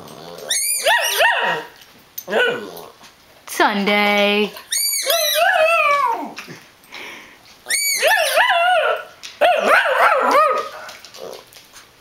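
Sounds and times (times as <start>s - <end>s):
dog yowling: 0.1s - 2.9s, 4.6s - 6.4s, 7.6s - 11.4s.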